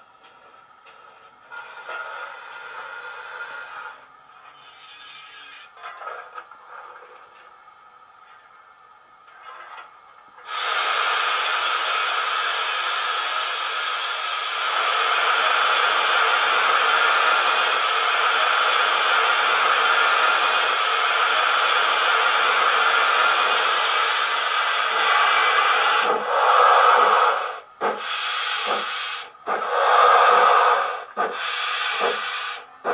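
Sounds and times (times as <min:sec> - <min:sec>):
steam hiss from small speaker: 0:10.4 - 0:32.9.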